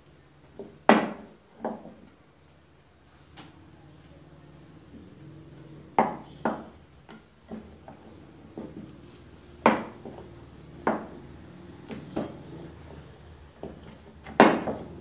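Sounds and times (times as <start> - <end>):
rolling pin knocking on board: 9.6 - 10.2, 10.8 - 11.2, 13.6 - 14.9.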